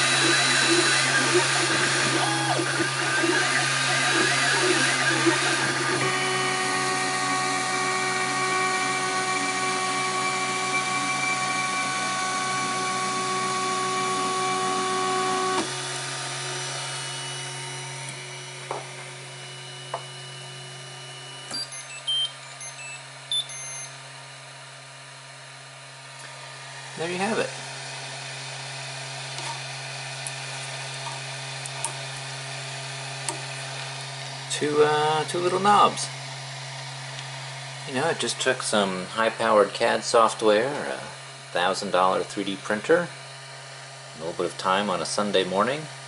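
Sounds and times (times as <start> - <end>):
printer motors whining: 0.0 - 25.5, 26.2 - 43.6
fan humming: 0.0 - 46.0
short high beeps: 21.5 - 24.0.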